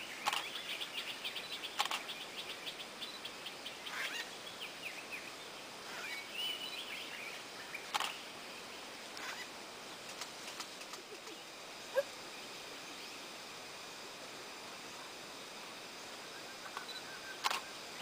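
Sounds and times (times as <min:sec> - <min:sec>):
small birds chirping and whistling: 0:00.0 - 0:08.2
sharp clicks: 0:00.2 - 0:00.5, 0:01.8 - 0:02.1, 0:07.9 - 0:08.2, 0:16.7 - 0:17.6.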